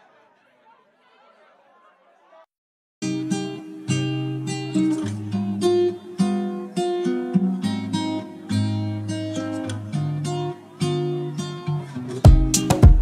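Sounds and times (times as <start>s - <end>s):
acoustic guitar strumming chords: 3.0s - 13.0s.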